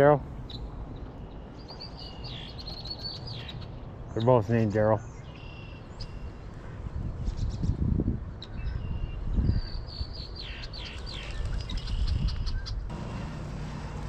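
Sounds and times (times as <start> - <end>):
songbirds chirping: 0.0 - 14.0
low rumbling noise: 12.9 - 14.0.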